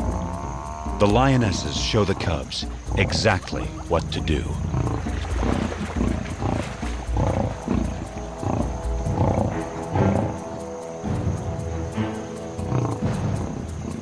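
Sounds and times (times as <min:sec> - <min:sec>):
documentary music score: 0:00.0 - 0:14.0
lionesses growling: 0:00.0 - 0:14.0.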